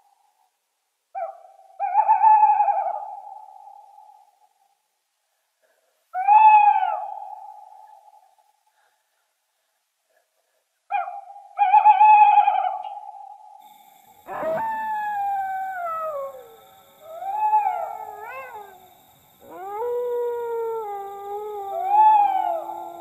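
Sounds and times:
dogs howling: 14.2s - 23.0s.

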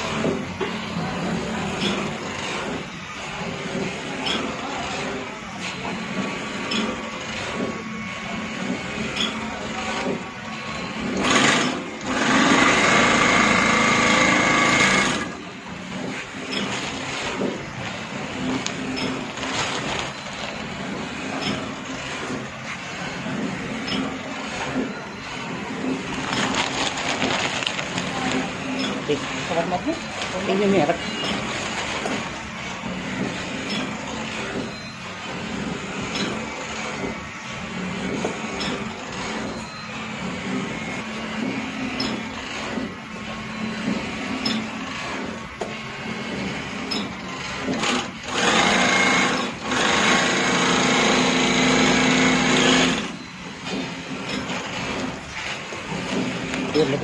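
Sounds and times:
bag sewing machine stitching: 8.5s - 22.5s, 25.4s - 34.7s, 46.1s - 57.0s.

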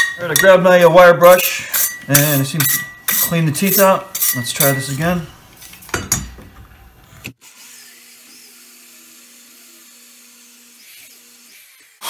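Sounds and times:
electric drill humming: 7.4s - 12.0s.

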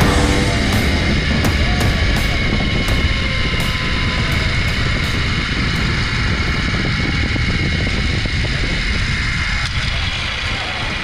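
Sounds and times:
wind rush on microphone: 0.0s - 11.0s
zipline trolley whirring on cable: 0.9s - 11.0s.

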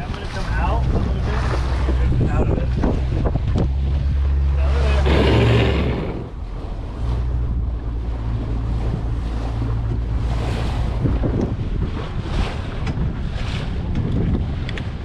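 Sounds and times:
boat engine hum: 0.0s - 15.0s
water rushing past hull: 0.0s - 15.0s
wind buffeting microphone: 0.0s - 15.0s.

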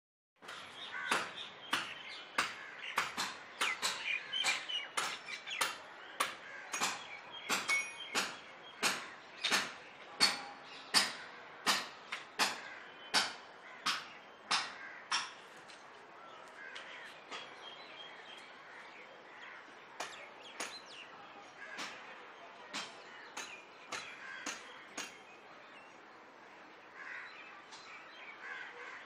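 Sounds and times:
small birds chirping faintly: 0.4s - 29.0s
crows cawing: 0.8s - 1.4s, 2.4s - 4.7s, 6.2s - 7.1s, 12.4s - 13.0s, 13.6s - 15.4s, 16.2s - 17.2s, 18.6s - 20.2s, 21.6s - 22.1s, 23.1s - 25.1s, 26.9s - 27.4s, 28.3s - 29.0s.

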